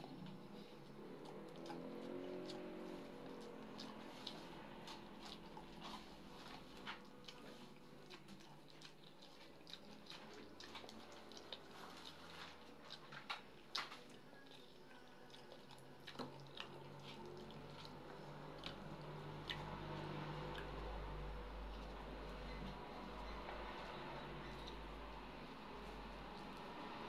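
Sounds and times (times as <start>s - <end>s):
chewing and lip smacks: 0.0s - 27.0s.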